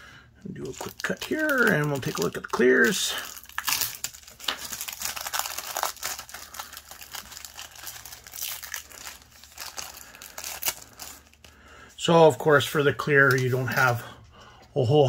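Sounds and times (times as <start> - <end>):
plastic bag crinkling: 0.5 - 12.0.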